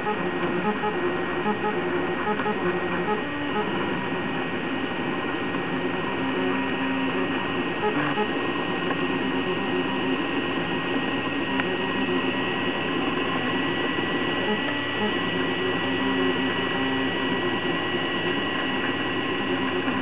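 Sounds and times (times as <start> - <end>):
hum of motors and fans: 0.0 - 20.0
stepper motors whining: 5.6 - 20.0.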